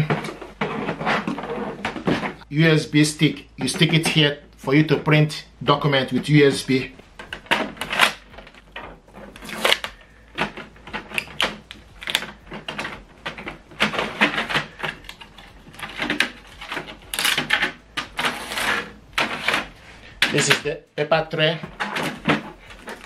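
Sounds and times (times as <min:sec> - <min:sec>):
packing tape ripping: 0:07.4 - 0:20.6.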